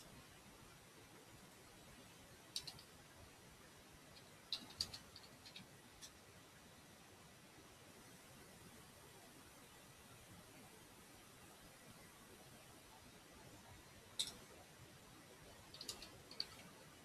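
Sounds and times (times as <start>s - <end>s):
room hiss: 0.0s - 17.0s
keyboard and mouse clicks: 2.5s - 2.9s, 4.2s - 6.2s, 14.2s - 14.4s, 15.7s - 16.8s.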